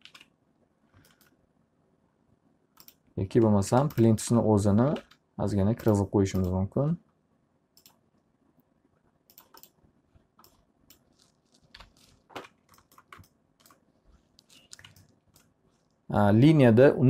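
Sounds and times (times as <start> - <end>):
computer keyboard and mouse clicking: 0.0 - 0.3, 0.9 - 1.4, 2.8 - 4.2, 4.9 - 6.6, 7.8 - 8.0, 9.3 - 9.8, 10.4 - 16.0.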